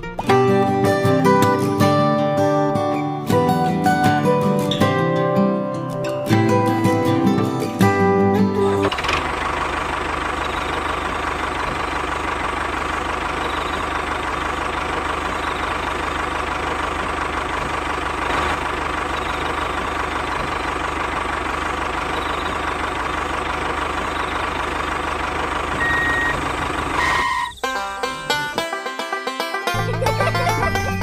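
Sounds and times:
tractor engine idling: 6.3s - 31.0s.

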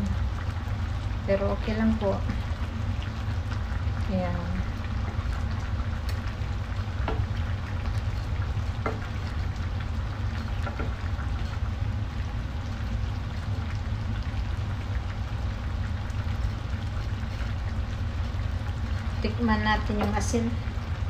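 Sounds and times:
stew bubbling in pan: 0.0s - 21.0s
wooden spoon knocking pan: 7.0s - 7.3s.

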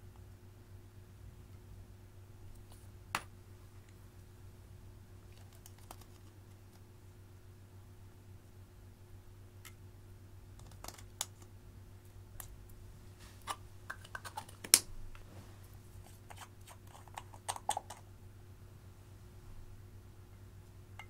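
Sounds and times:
plastic makeup tubes clicking: 10.6s - 11.5s, 13.9s - 14.9s, 16.4s - 18.0s.

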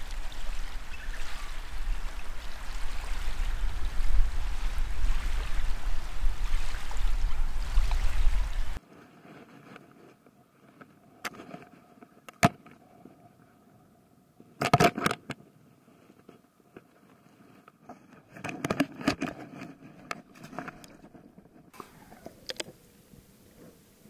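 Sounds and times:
water splashing: 0.0s - 8.8s, 21.7s - 24.0s.

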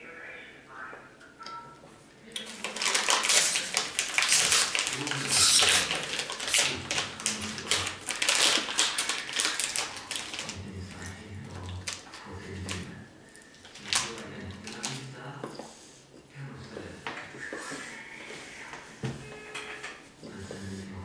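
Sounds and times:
paper napkin crinkling: 2.4s - 12.9s.

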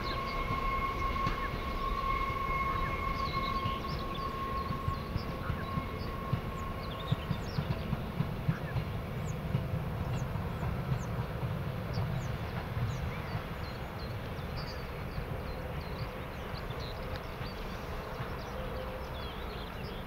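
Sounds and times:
birds chirping: 0.0s - 20.0s
train rumbling on track: 0.0s - 20.0s.

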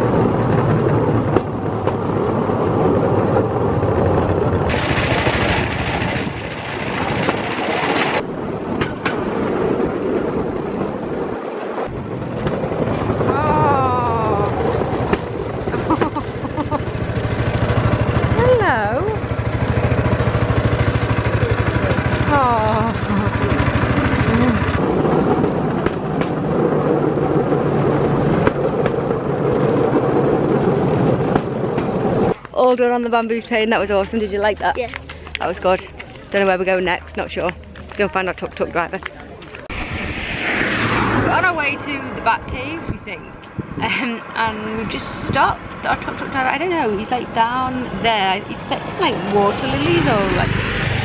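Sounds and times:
train clattering on rails: 0.0s - 9.9s, 14.1s - 32.4s
wheels clacking over rail joints: 0.0s - 39.7s
small engine beat: 12.9s - 26.4s.

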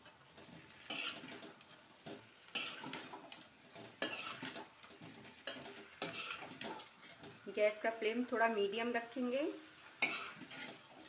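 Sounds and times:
metal spatula scraping pan: 0.0s - 7.4s, 10.0s - 11.0s.

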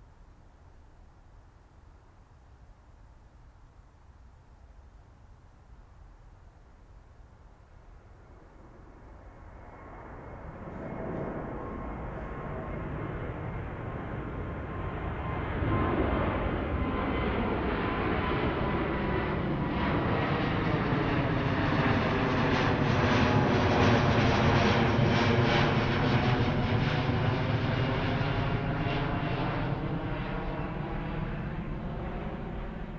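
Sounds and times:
jet airliner passing overhead: 7.5s - 32.9s.

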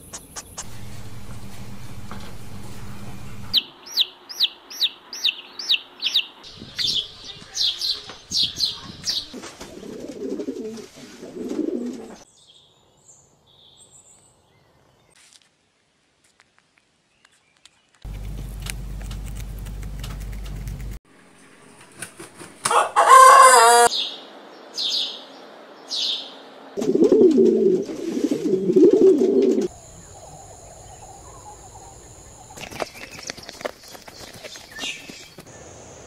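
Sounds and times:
steady low hum: 0.5s - 3.6s, 18.1s - 21.8s, 29.6s - 32.6s
pigeon cooing: 9.3s - 12.2s, 26.8s - 30.4s.

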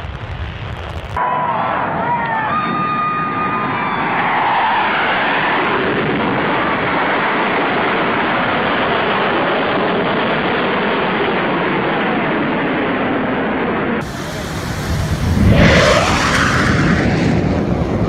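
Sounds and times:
fighter jet engines roaring: 0.0s - 18.0s.

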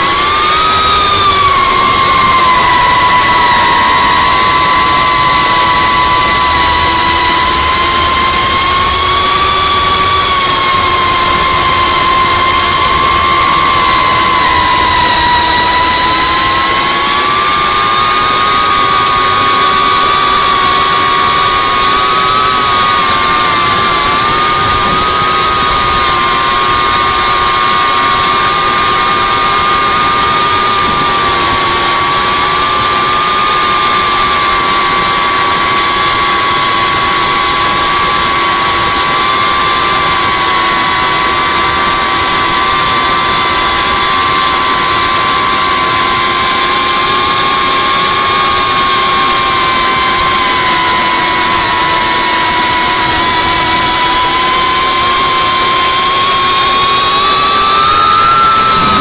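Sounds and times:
drone motors whining: 0.0s - 59.0s
hiss of prop wash and wind: 56.2s - 59.0s.

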